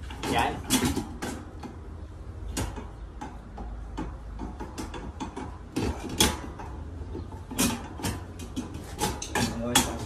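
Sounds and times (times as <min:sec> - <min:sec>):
metal clatter: 0:04.0 - 0:10.0.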